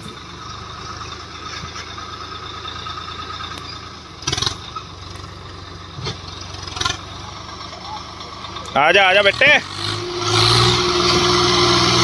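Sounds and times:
tractor diesel engine rumbling: 0.0s - 12.0s.

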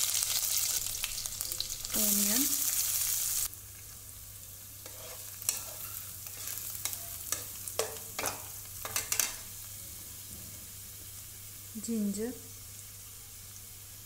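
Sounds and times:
onions sizzling in hot oil: 0.0s - 14.0s
spatula scraping pan: 4.8s - 9.5s.

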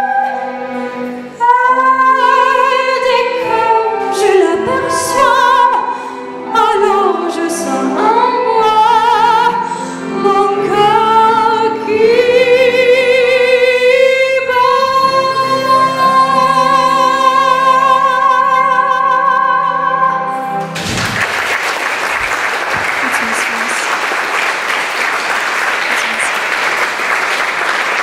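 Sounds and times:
woman singing with vibrato: 0.0s - 20.6s
violin: 0.0s - 20.8s
piano: 0.0s - 28.0s
audience applause: 20.7s - 28.0s.

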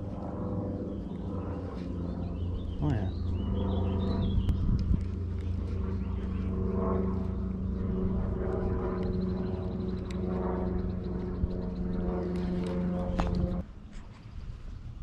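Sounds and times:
steady motor drone: 0.0s - 15.0s.

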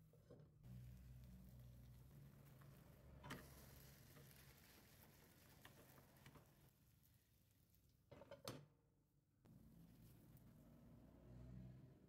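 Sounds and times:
batter sizzling in a pan: 0.9s - 6.7s.

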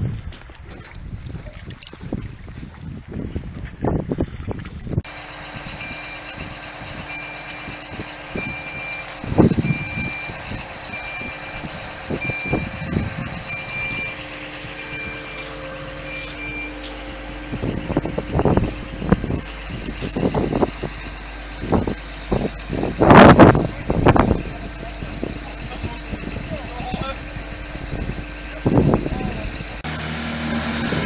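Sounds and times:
truck engine running: 4.9s - 31.0s
crane warning beeper: 5.2s - 19.2s.

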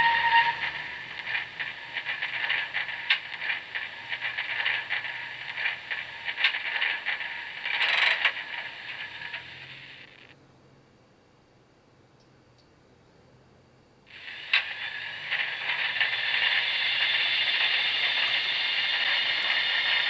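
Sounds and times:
model train clicking and rattling: 0.0s - 10.3s, 14.1s - 20.0s.

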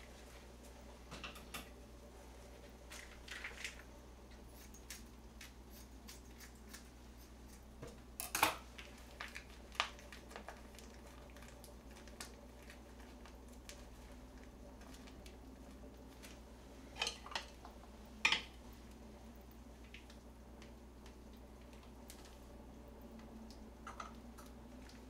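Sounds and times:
plastic sachet crinkling: 8.7s - 15.3s.

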